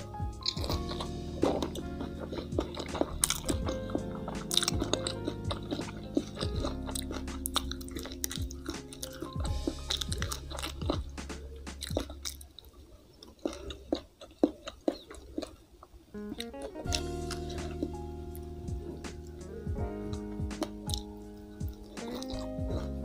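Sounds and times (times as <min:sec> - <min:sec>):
soft background music: 0:00.0 - 0:12.5, 0:16.1 - 0:23.0
chewing crispy fried fish: 0:00.0 - 0:23.0
mouth clicks: 0:16.2 - 0:22.9.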